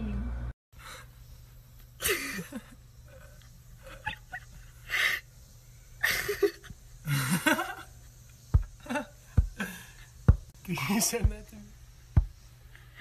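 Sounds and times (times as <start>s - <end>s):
breathy laughter: 2.0s - 5.3s, 6.0s - 10.1s.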